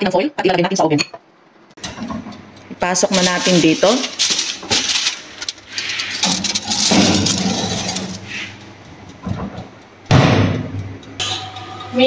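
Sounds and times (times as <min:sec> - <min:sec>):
dish scraping over wire rack: 0:03.1 - 0:08.6.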